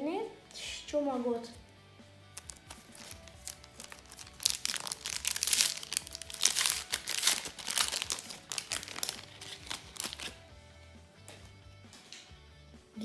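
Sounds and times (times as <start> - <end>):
foil wrapper tearing and crinkling: 2.3 - 10.4.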